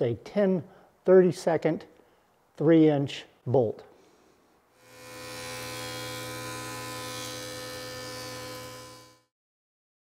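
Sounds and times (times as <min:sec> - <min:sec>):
woodworking machine buzzing hum: 0:04.8 - 0:09.3.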